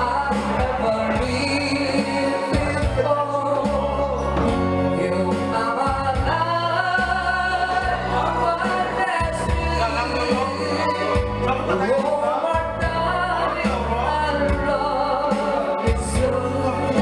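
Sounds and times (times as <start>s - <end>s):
man singing into microphone: 0.0s - 17.0s
music with bass line: 0.0s - 17.0s.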